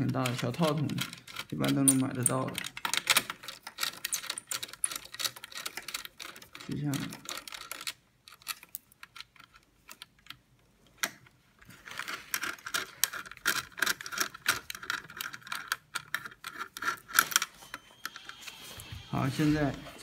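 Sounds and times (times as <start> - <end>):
nut driver clicking and rattling: 0.0 - 10.4, 12.4 - 17.4.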